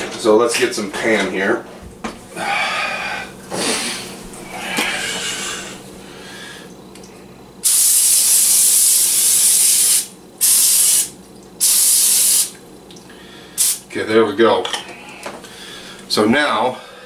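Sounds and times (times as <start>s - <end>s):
aerosol spray hissing: 7.6s - 12.5s, 13.6s - 13.8s.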